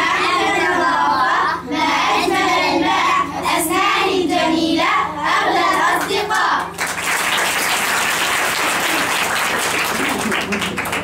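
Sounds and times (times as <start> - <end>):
children singing: 0.0 - 6.4.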